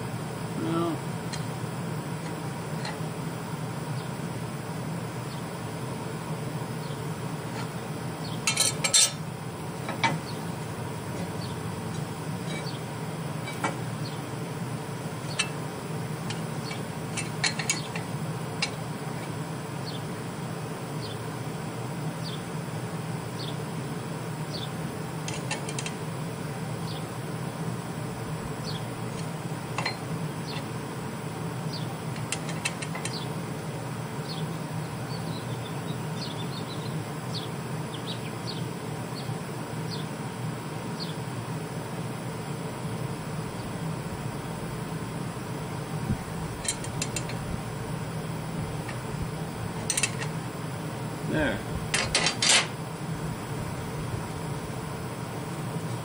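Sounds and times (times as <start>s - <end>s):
steady low hum: 0.0s - 56.0s
steel tools tapping steel plate: 8.5s - 9.2s, 16.3s - 18.8s, 46.6s - 47.4s, 49.8s - 50.3s, 51.9s - 52.7s.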